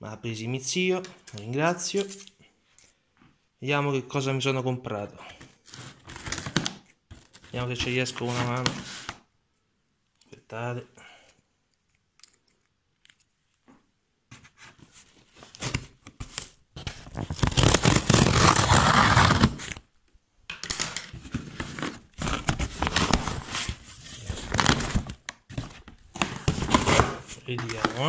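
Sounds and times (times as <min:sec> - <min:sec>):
scissors scraping along tape: 0:17.4 - 0:19.8.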